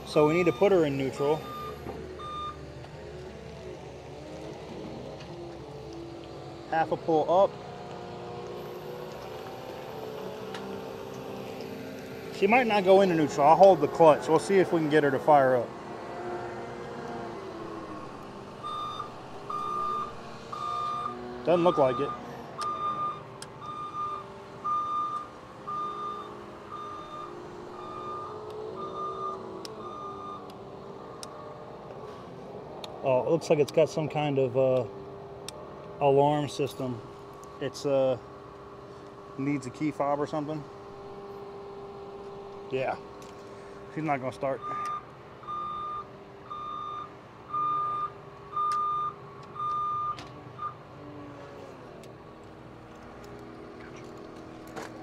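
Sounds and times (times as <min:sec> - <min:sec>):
electronic warning beeper: 0:18.6 - 0:30.5, 0:44.5 - 0:50.8.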